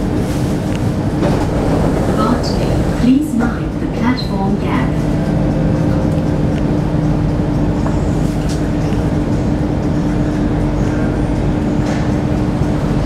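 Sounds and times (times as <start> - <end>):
metro train humming at platform: 0.0 - 13.0.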